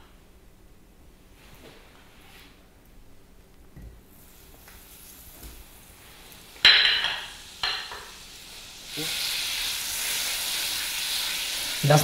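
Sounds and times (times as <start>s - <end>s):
butter sizzling in a pan: 4.1s - 12.0s.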